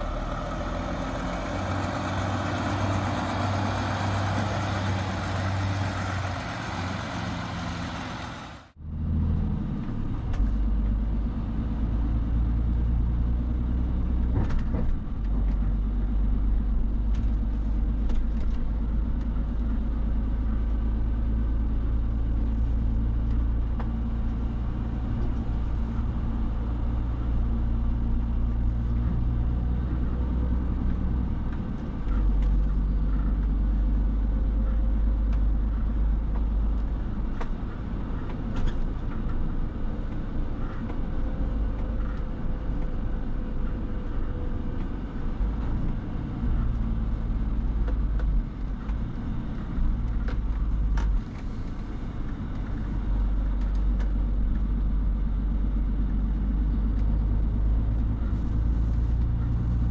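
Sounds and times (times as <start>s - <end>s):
truck diesel engine running: 0.0s - 9.1s
road noise: 0.0s - 59.9s.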